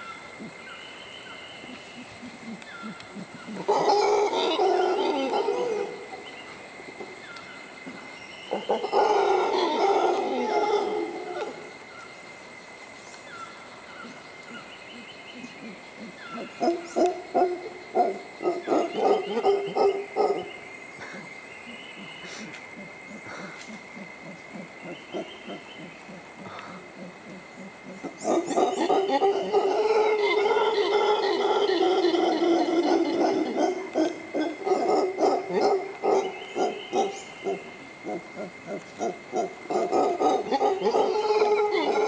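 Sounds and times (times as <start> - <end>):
monkey deep howl: 2.2 - 6.3, 8.5 - 11.7, 22.8 - 42.0.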